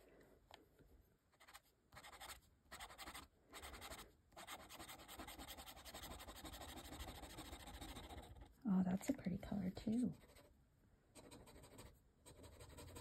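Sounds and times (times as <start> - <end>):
pen nib scribbling on paper: 1.3 - 8.6, 10.1 - 10.5, 11.2 - 13.0.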